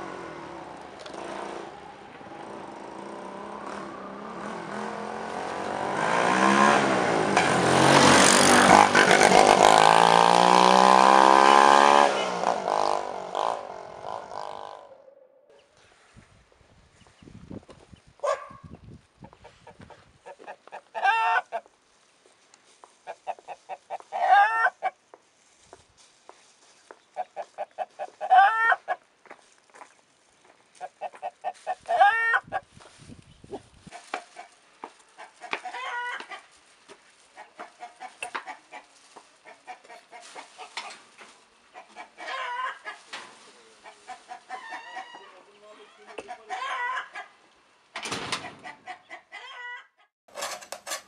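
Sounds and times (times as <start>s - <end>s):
hen cackling: 19.2s - 21.7s, 23.0s - 25.0s, 27.2s - 29.0s, 30.8s - 32.6s, 35.2s - 36.5s, 37.4s - 40.8s, 41.7s - 43.1s, 43.7s - 47.4s, 48.4s - 50.1s.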